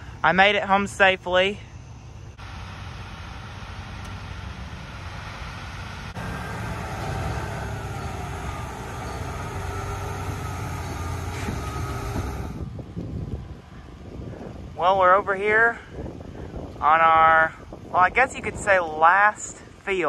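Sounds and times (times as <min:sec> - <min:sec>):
large vehicle engine rumbling: 0:02.3 - 0:18.0.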